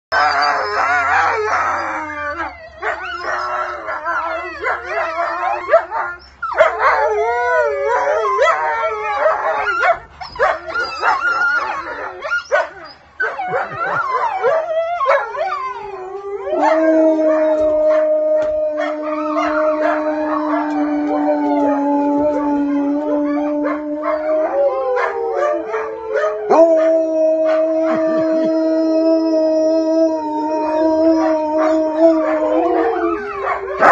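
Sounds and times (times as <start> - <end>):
wolves howling in chorus: 0.1 - 33.9
single wolfdog howling: 10.5 - 33.9.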